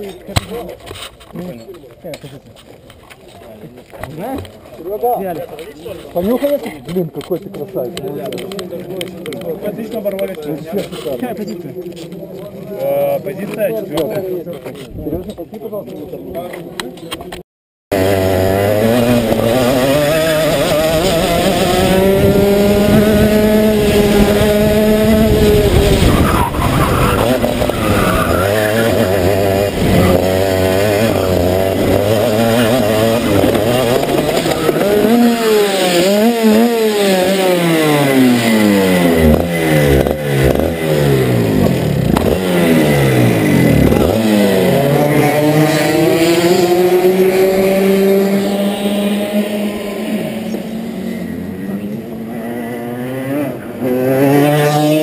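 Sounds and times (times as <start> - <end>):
kart engine revving: 17.9 - 55.0.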